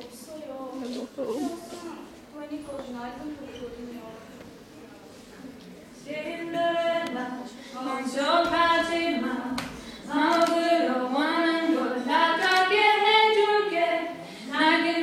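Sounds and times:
women singing unaccompanied: 6.0 - 15.0.

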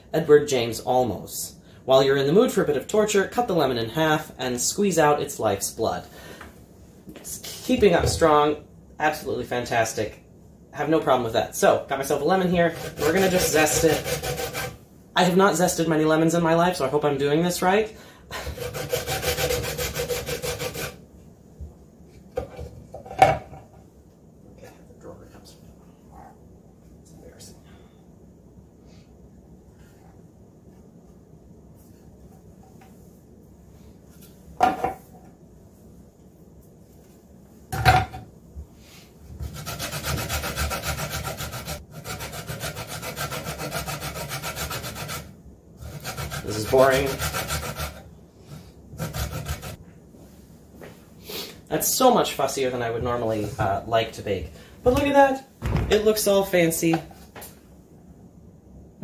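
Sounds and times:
lemon rasping on metal grater: 12.6 - 14.8, 18.5 - 21.0, 39.4 - 48.0, 49.0 - 49.8
sharp knocks: 55.6 - 56.1.

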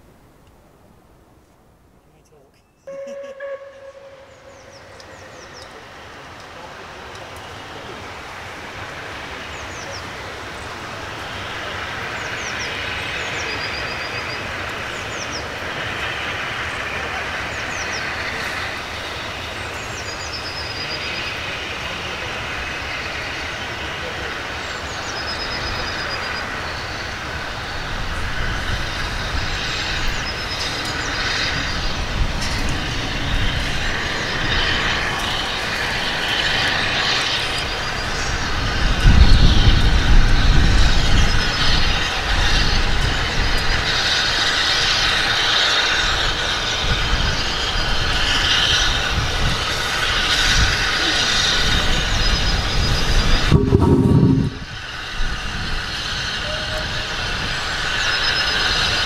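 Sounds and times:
bird chirping: 2.6 - 5.8
steam locomotive working: 2.9 - 59.0.

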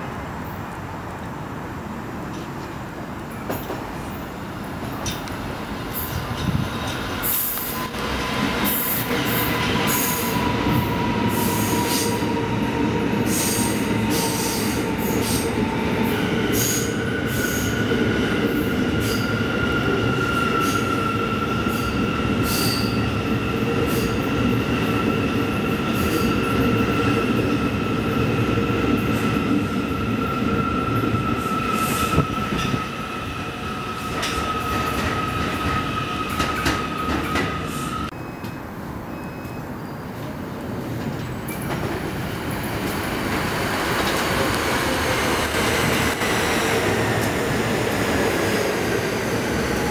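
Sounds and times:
subway train rumbling: 0.0 - 49.9
high wheel squeal: 19.0 - 23.2.

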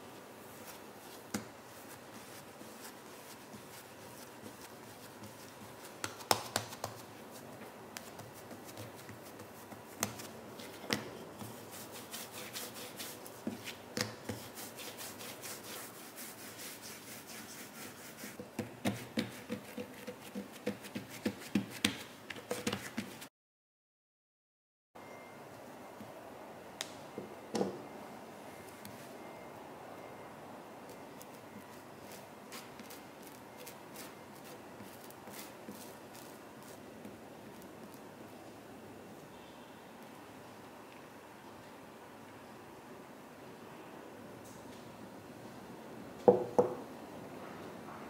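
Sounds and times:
hands rubbing bread dough: 0.0 - 23.3, 30.9 - 38.0.

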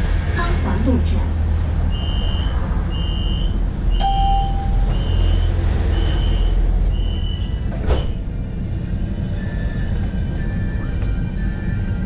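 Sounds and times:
tram low hum: 0.0 - 12.0
tram door warning beeps: 1.9 - 8.3, 9.2 - 12.0.

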